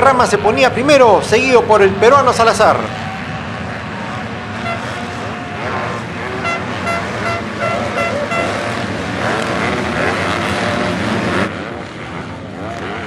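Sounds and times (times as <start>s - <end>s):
motocross bike engines revving: 0.0s - 13.0s
short high toots: 6.2s - 9.0s.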